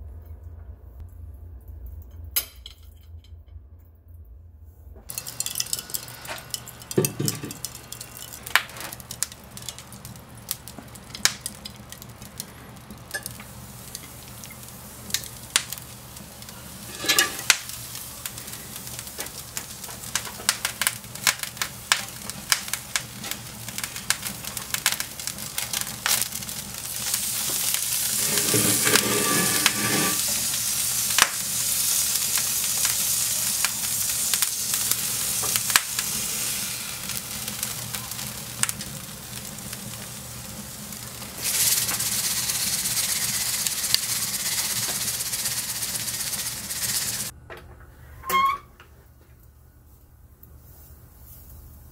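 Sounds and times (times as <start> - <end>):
metal clinks and scrapes: 5.1 - 8.4, 16.9 - 17.4, 28.2 - 30.3
beef sizzling: 5.1 - 47.3
charcoal fire crackling and popping: 5.1 - 47.4
hiss of flames: 5.2 - 47.3.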